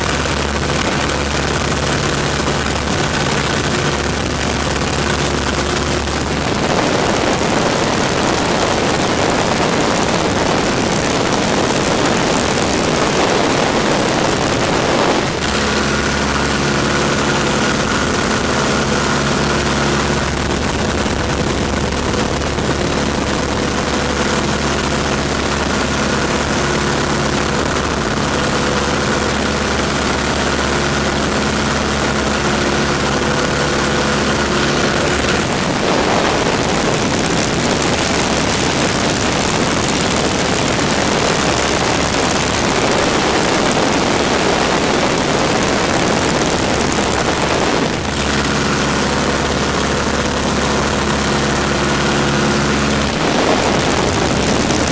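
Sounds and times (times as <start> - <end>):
biplane engine and propeller: 0.0 - 54.9
wind rushing past: 5.0 - 23.6, 31.3 - 48.4, 51.8 - 54.9.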